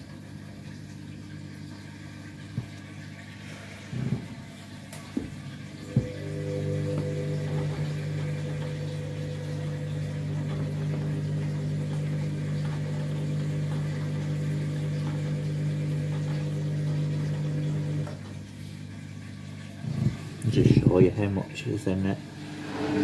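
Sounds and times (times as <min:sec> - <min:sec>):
washing machine humming: 0:00.0 - 0:23.0.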